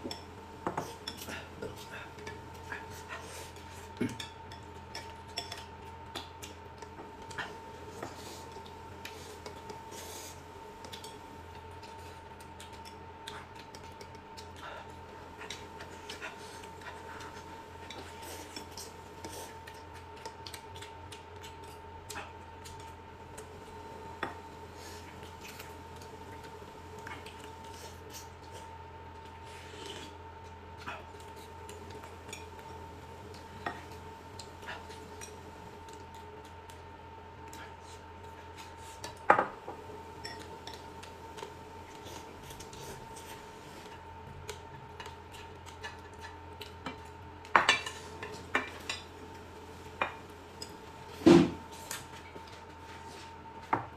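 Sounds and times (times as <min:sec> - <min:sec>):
utensils clinking against dishes: 0:40.2 - 0:40.9.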